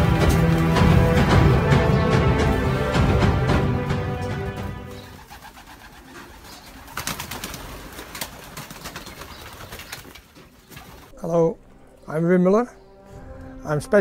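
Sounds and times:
background music: 0:00.0 - 0:06.1, 0:11.1 - 0:14.0
wings flapping: 0:04.6 - 0:11.2
pigeons cooing: 0:04.9 - 0:11.1.

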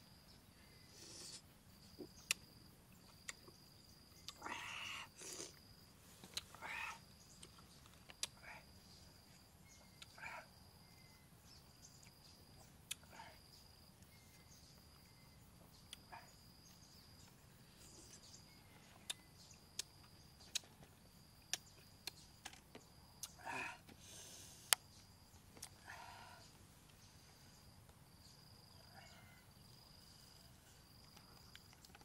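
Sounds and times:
faint high insect call: 0:00.0 - 0:32.0
mouth sucking and slurping: 0:00.9 - 0:01.4, 0:04.3 - 0:05.6
tongue clicks: 0:02.1 - 0:02.5, 0:03.1 - 0:03.5, 0:04.2 - 0:05.6, 0:06.3 - 0:08.5, 0:12.8 - 0:13.2, 0:19.1 - 0:20.7, 0:21.5 - 0:22.6.

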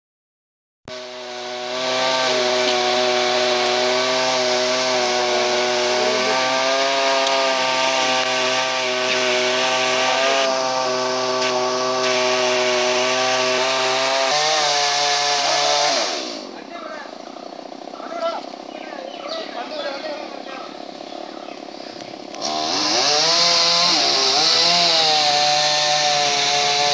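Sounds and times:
chainsaw engine running: 0:00.9 - 0:26.9.

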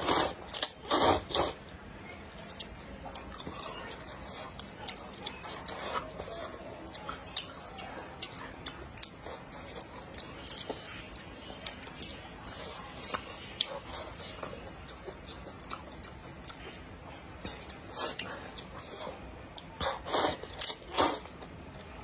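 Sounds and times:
wet chewing: 0:00.0 - 0:22.0.

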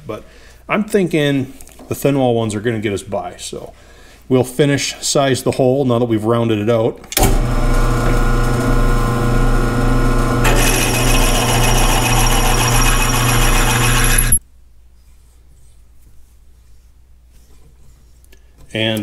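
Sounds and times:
drill press motor hum: 0:07.2 - 0:14.4
drill bit cutting metal: 0:10.4 - 0:14.4.

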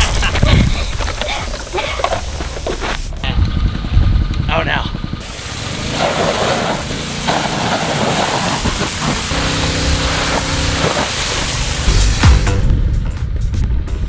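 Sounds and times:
water jet hissing: 0:00.9 - 0:03.2, 0:05.2 - 0:12.6.

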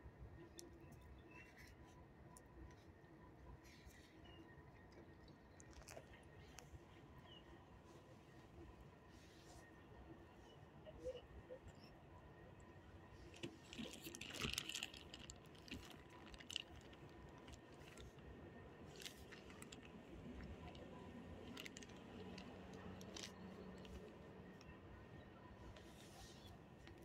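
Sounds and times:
plastic snack bag crinkling: 0:13.4 - 0:18.2, 0:18.9 - 0:24.1.

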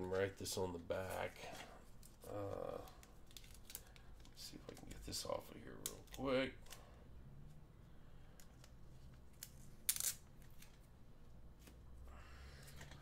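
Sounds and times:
faint plastic rustles and clicks: 0:00.0 - 0:06.9, 0:08.2 - 0:11.8, 0:12.6 - 0:13.0
crackly tape rip: 0:09.3 - 0:10.8.

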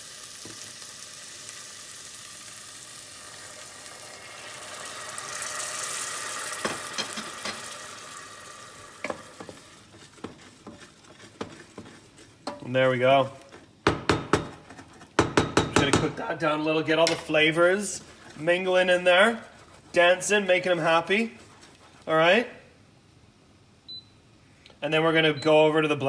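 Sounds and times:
steam hissing: 0:00.0 - 0:12.5
vegetables sizzling in a pan: 0:00.0 - 0:15.3
wooden spoon knocking pan: 0:09.0 - 0:12.8, 0:13.8 - 0:16.2.

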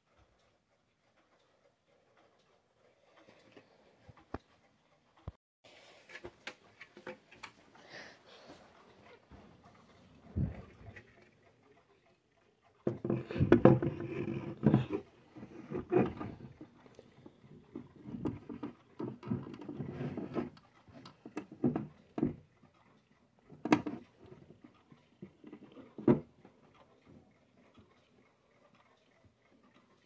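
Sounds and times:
hands rubbing clock case: 0:12.9 - 0:16.8.

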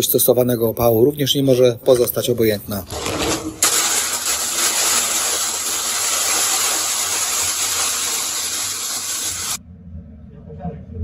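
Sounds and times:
wood pellets pouring into hopper: 0:02.9 - 0:09.6.

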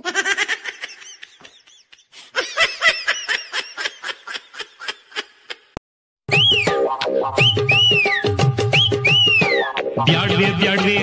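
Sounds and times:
high-pitched giggling: 0:00.0 - 0:05.8.

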